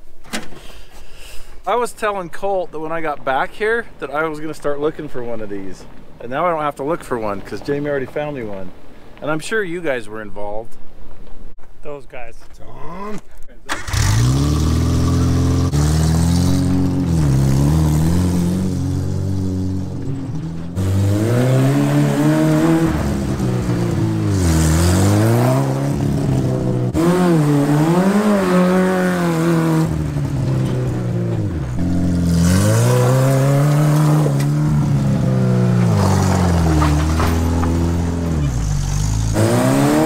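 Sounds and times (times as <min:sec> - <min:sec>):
car engine revving: 0:13.7 - 0:40.0.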